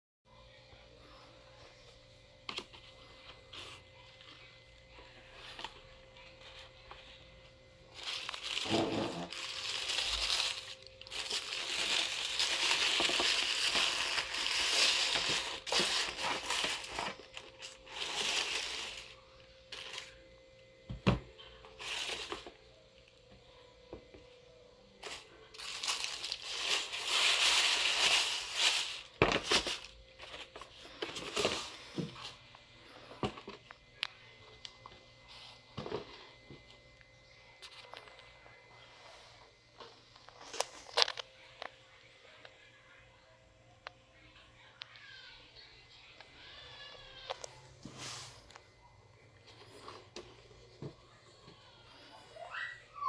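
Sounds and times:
tissue paper crinkling: 0:07.9 - 0:20.2, 0:21.8 - 0:22.6, 0:25.0 - 0:31.8.

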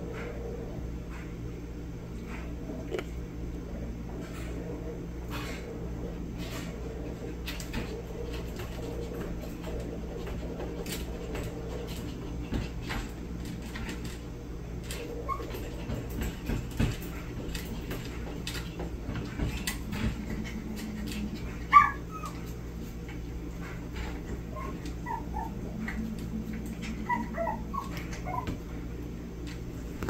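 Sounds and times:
crate clicks and rattles: 0:04.2 - 0:30.0
small dog whining and yipping: 0:15.2 - 0:15.6, 0:21.6 - 0:22.5, 0:24.5 - 0:26.0, 0:26.7 - 0:28.6.

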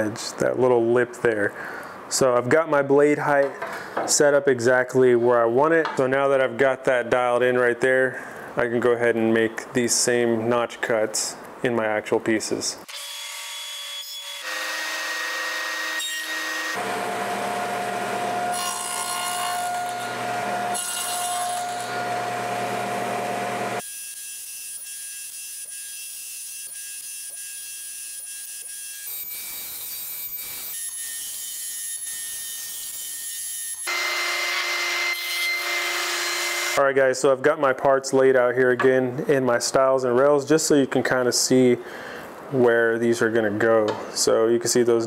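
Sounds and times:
table saw cutting wood: 0:12.9 - 0:36.8.

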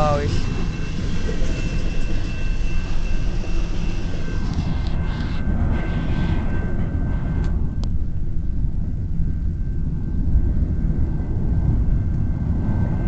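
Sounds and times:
freight train cars rolling: 0:00.0 - 0:05.2.

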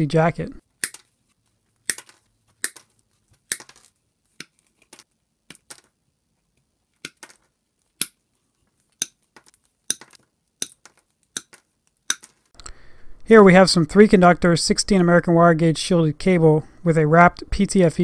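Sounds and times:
pliers snipping cable: 0:01.9 - 0:02.9.

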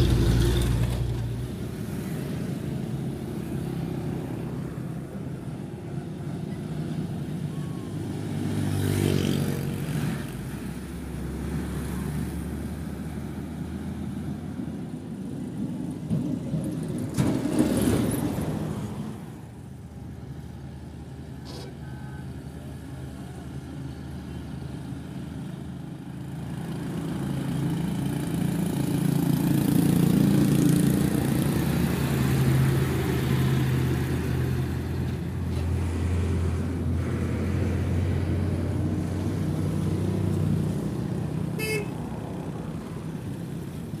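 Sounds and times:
diesel trucks driving past: 0:00.0 - 0:44.0
truck horn toot: 0:41.6 - 0:42.0.

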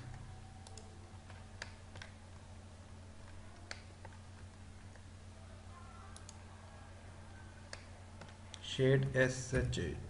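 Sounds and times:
computer mouse clicks: 0:00.0 - 0:02.2, 0:03.2 - 0:05.0, 0:06.1 - 0:06.4, 0:07.7 - 0:08.6
steady low hum: 0:00.0 - 0:10.0.

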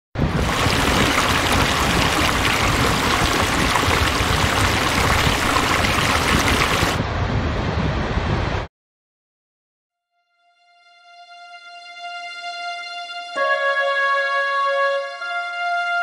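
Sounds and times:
waterfall rushing: 0:00.2 - 0:07.0.

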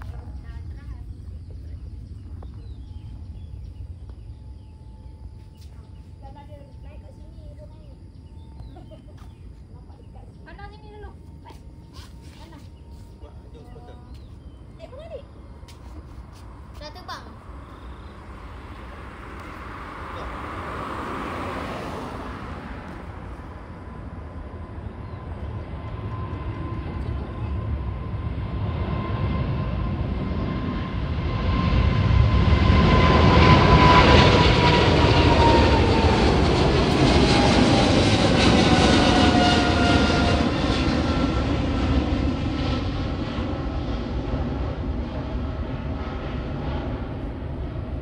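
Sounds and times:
whining jet engine tone: 0:00.0 - 0:48.0
jet airliner taking off: 0:10.4 - 0:48.0.

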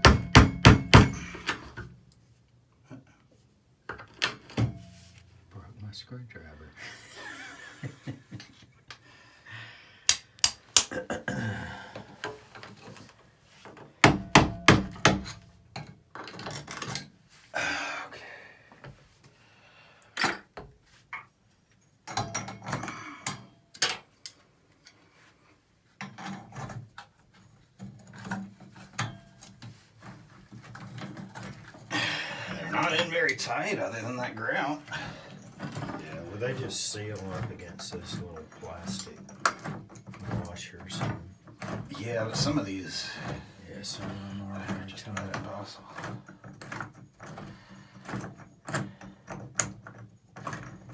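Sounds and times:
screwdriver scraping grout: 0:27.8 - 0:50.9.

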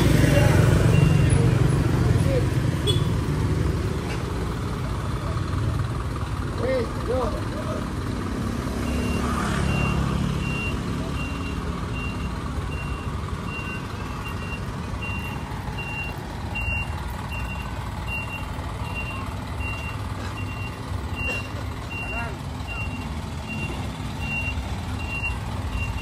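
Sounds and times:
truck engine rumble: 0:00.0 - 0:26.0
truck warning beeper: 0:00.4 - 0:01.7, 0:08.7 - 0:26.0.

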